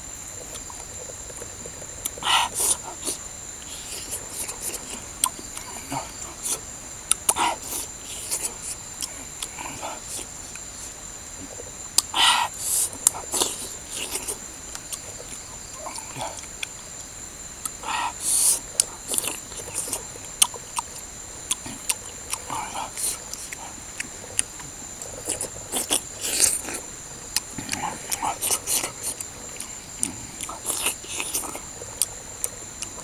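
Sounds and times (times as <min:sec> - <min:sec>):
high insect drone: 0:00.0 - 0:33.0
chewing and lip-smacking: 0:00.4 - 0:10.7, 0:11.4 - 0:33.0
mouth clicks: 0:00.4 - 0:10.7.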